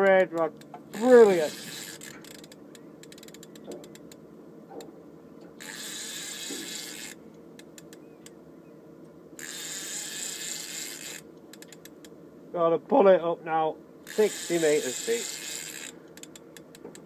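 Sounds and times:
fishing reel ratchet clicking: 0:00.4 - 0:04.2, 0:05.6 - 0:08.4, 0:09.4 - 0:12.1, 0:14.1 - 0:17.0.

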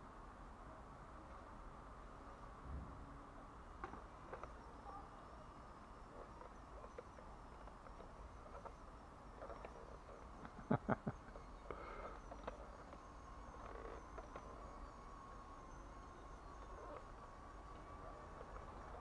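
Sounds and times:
toy car motor whine: 0:03.8 - 0:19.0.

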